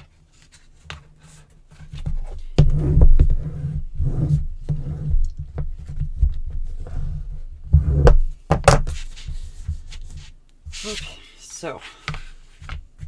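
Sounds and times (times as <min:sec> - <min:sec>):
hands rubbing paper strip: 0:08.9 - 0:12.8.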